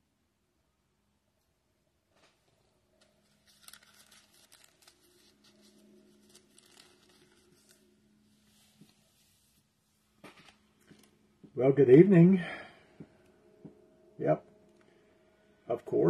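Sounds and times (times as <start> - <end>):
low steady hum: 0.0 - 16.0
rustling of items on desk: 2.1 - 11.5.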